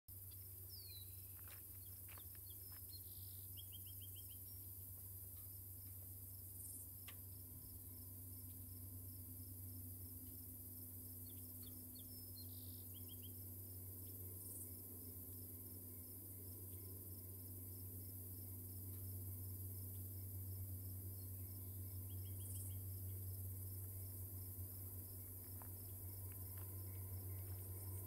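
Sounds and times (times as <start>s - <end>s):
crickets chirping: 0.1s - 28.0s
faint low hum: 0.1s - 28.0s
bird chirps: 0.3s - 4.7s, 11.2s - 13.4s, 21.2s - 22.9s.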